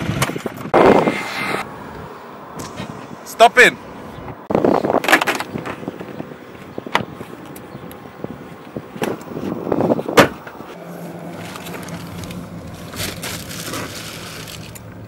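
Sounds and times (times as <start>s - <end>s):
car door shutting: 10.0s - 10.6s.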